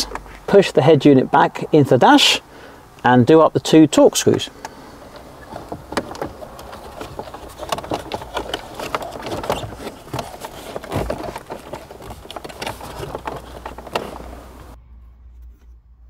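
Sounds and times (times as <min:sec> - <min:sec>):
plastic clicks and clatter: 0:04.3 - 0:14.8.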